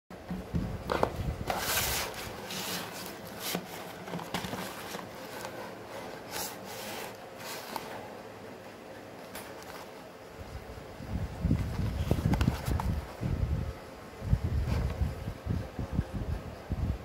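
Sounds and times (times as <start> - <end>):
cardboard rubbing and scraping: 0.3 - 8.1, 11.5 - 13.2.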